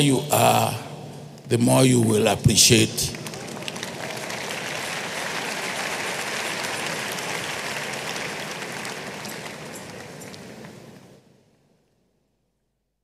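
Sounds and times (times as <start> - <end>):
audience applauding: 2.7 - 11.2.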